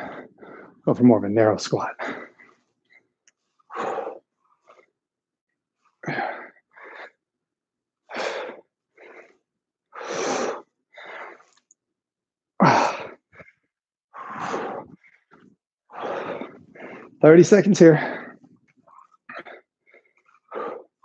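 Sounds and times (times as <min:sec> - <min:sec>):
man breathing hard with exertion: 0:00.0 - 0:00.8, 0:03.7 - 0:04.9, 0:06.0 - 0:07.3, 0:08.0 - 0:11.6, 0:12.6 - 0:17.2, 0:19.3 - 0:21.0.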